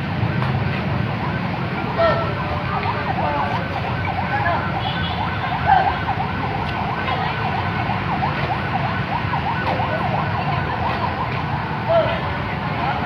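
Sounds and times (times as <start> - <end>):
siren yelping: 1.1 - 12.3.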